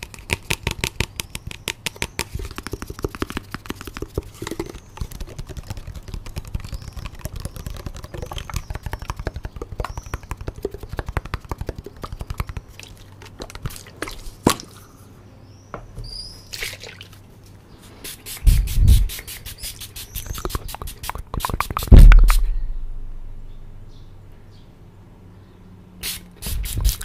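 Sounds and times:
fingers tapping plastic bottle: 0.0 - 12.7
loud low thump: 21.9 - 23.8.

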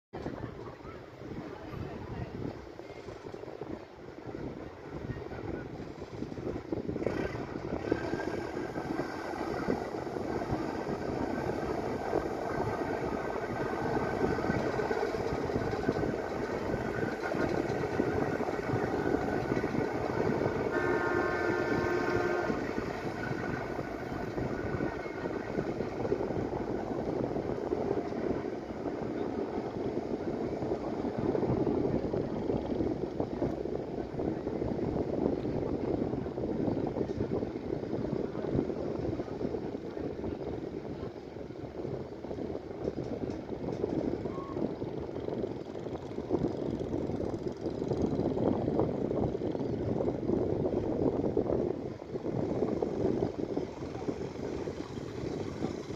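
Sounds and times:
rush of boat wake: 0.2 - 43.5
boat diesel engine roaring: 2.5 - 55.9.

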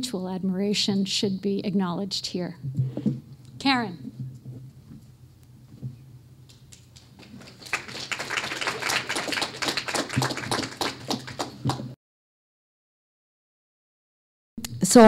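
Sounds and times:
audience applauding: 7.0 - 12.0.

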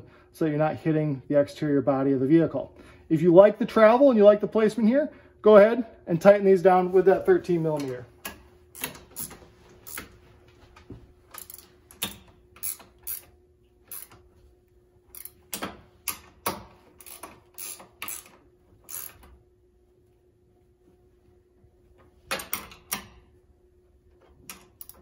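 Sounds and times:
ratchet clicking: 8.2 - 10.1, 11.3 - 14.2, 15.1 - 19.4, 24.5 - 25.0.

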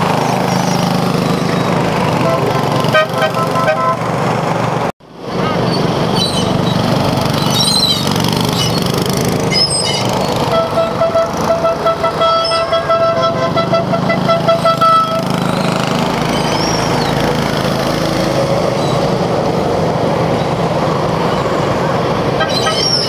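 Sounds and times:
small engine rumbling: 0.0 - 23.0
vehicle horn tooting: 2.2 - 4.1, 10.4 - 15.4, 22.4 - 23.0.

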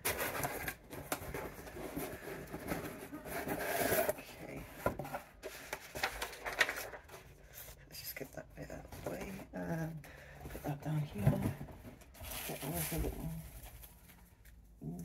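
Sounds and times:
packaging rustling and scraping: 0.0 - 7.8, 10.5 - 14.6.

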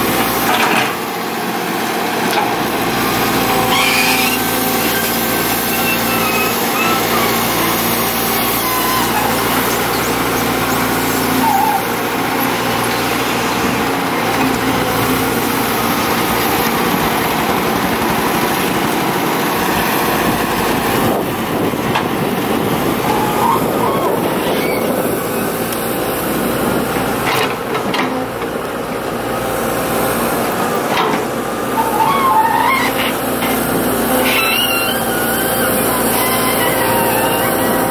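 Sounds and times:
excavator diesel engine running: 0.0 - 37.9
short squeaks: 3.6 - 10.6, 11.3 - 12.0, 23.1 - 25.0, 31.8 - 33.6, 34.2 - 37.9.

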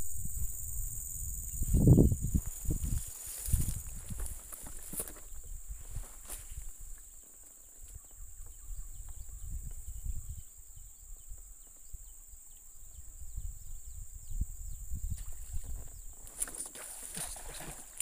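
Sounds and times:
low wind rumble on microphone: 0.0 - 7.1, 7.8 - 16.3
high-pitched insect drone: 0.0 - 7.2.

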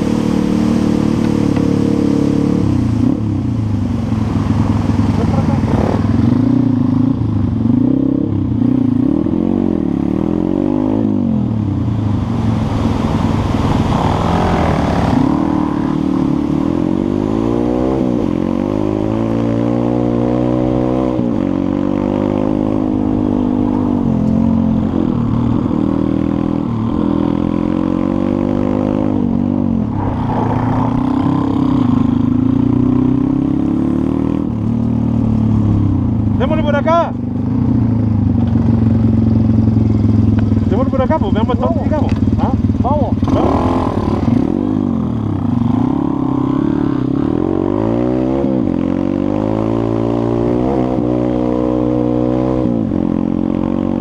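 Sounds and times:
pit bike engine revving: 12.4 - 54.0.

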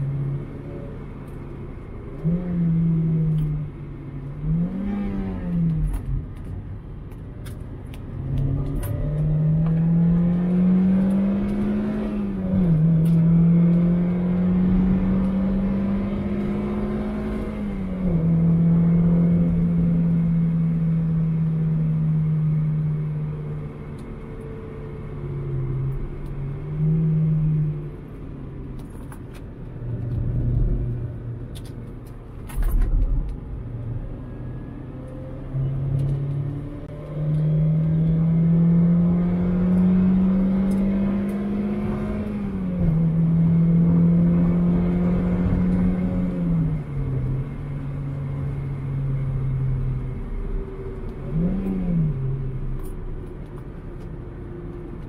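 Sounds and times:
car engine revving hard: 36.4 - 46.7.

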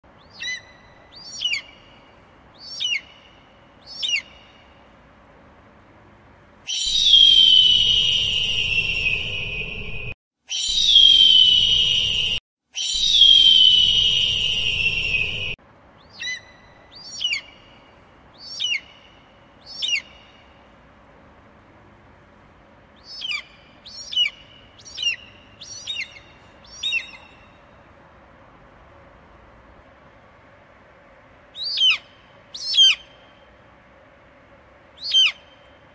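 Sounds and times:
eagle chirping: 0.2 - 4.7, 16.0 - 17.8, 18.4 - 20.5, 23.0 - 27.7, 31.6 - 33.3, 35.0 - 35.8.

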